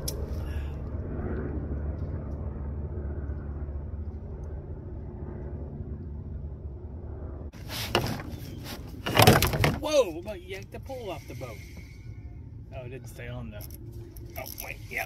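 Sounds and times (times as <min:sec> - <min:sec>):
low rumble: 0:00.0 - 0:07.7
faint hum: 0:00.0 - 0:15.0.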